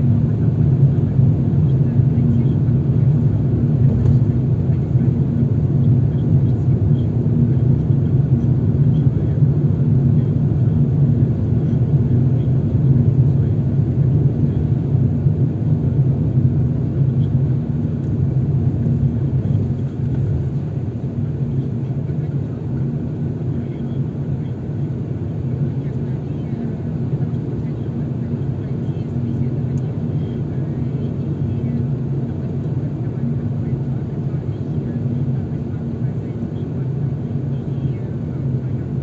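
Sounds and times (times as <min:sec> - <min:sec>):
car engine and tyres rumbling: 0:00.0 - 0:26.0
faint steady hum: 0:00.0 - 0:39.0.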